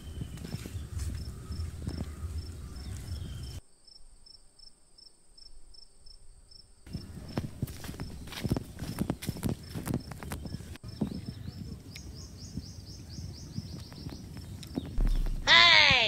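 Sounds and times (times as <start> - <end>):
footfalls on dirt: 0.0 - 3.5, 6.9 - 11.3, 14.8 - 16.0
insect chirping: 0.0 - 7.4
low rumble: 15.0 - 16.0.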